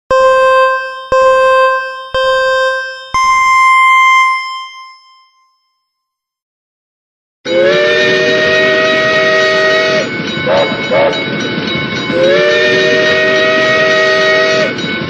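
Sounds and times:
electronic chime notes: 0.1 - 5.9.

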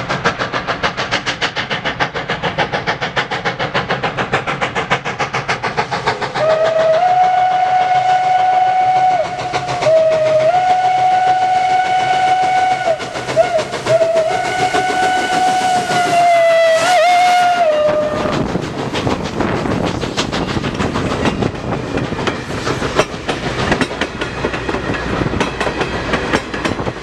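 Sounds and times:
steam locomotive exhaust chuffs: 0.0 - 27.0
steam whistle: 6.4 - 18.4.

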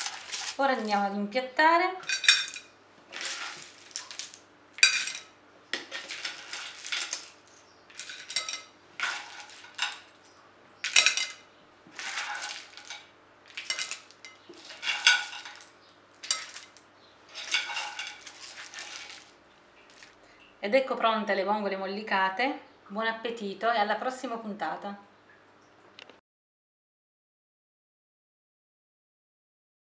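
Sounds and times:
clam shells clattering: 0.0 - 1.0, 2.0 - 20.1.

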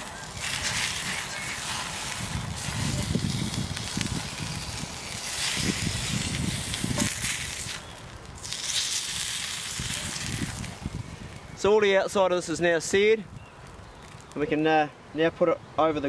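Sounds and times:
meat sizzling in a frying pan: 0.0 - 11.4
wood fire crackling: 0.0 - 15.1.

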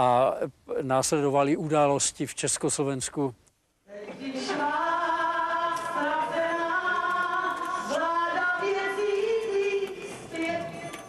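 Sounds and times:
voices singing slow melody: 3.9 - 11.0.

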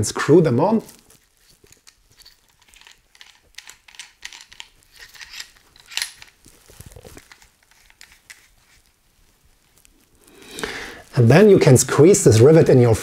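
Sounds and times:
riveting tool clicks and rattles: 1.4 - 8.5.

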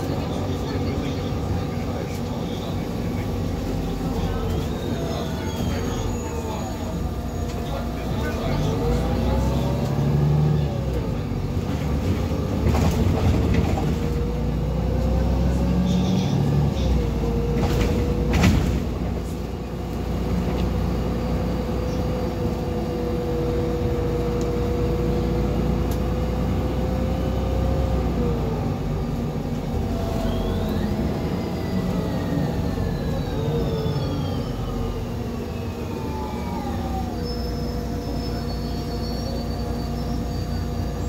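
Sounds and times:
bus engine rumble: 0.0 - 41.0
gearbox whine: 29.6 - 41.0.

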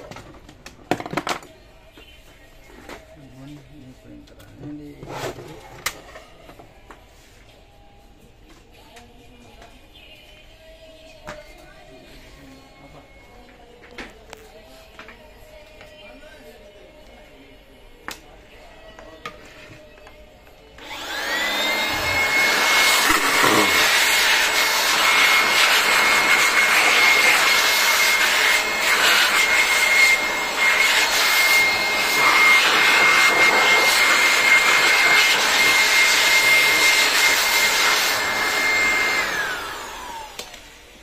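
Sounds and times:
electric air blower whine: 20.8 - 41.0.

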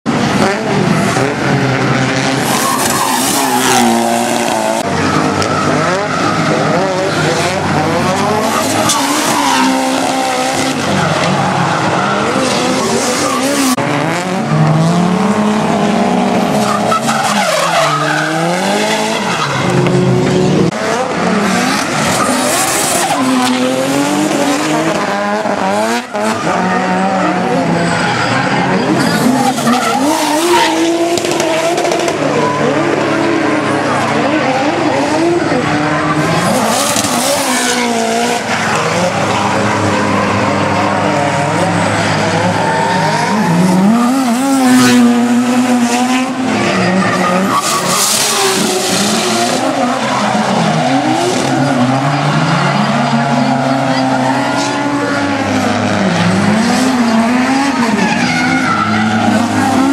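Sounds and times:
car engines revving: 0.0 - 59.9
tyres squealing: 2.2 - 20.1.

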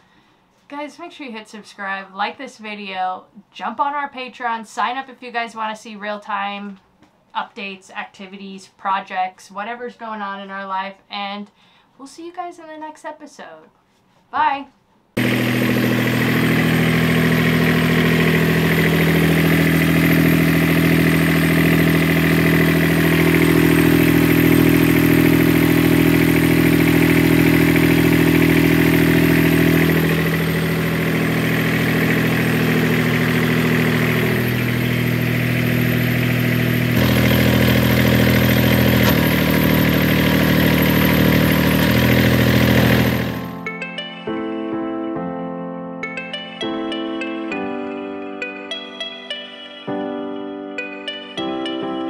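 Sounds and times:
boat engine running: 15.2 - 43.6.

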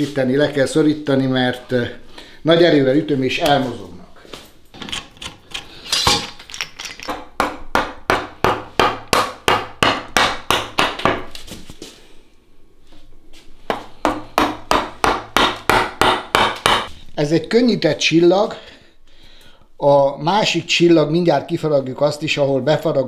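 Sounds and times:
mallet striking chisel into wood: 7.1 - 11.3, 13.7 - 16.9.

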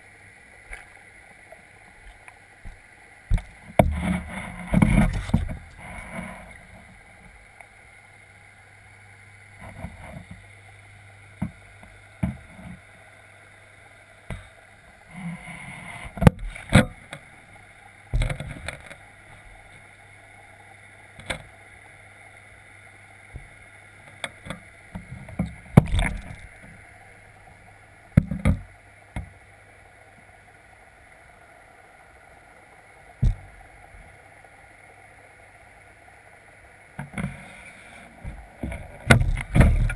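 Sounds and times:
underwater low hum: 0.0 - 39.9
fish knocking against housing: 2.6 - 4.1, 33.2 - 33.5, 38.2 - 39.9.

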